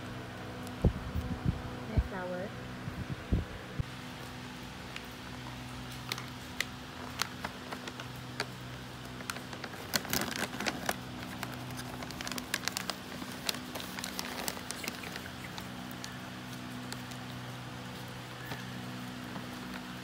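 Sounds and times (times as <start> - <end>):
foil snack bag crackling: 5.3 - 17.5.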